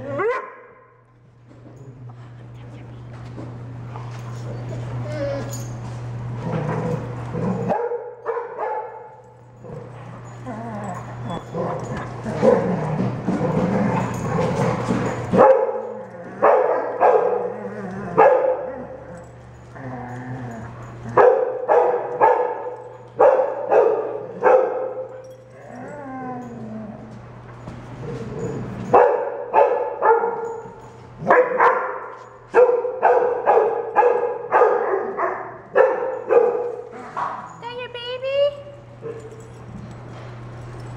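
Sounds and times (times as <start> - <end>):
dog barking: 0.2 - 0.8, 7.7 - 9.2, 15.4 - 17.5, 18.2 - 18.7, 21.2 - 25.2, 28.9 - 37.6
dogs vocalizing: 9.5 - 27.3.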